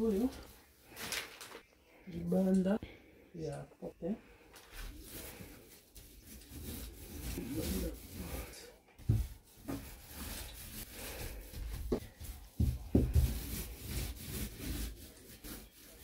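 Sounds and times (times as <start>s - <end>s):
paint roller rubbing on door: 4.8s - 16.0s.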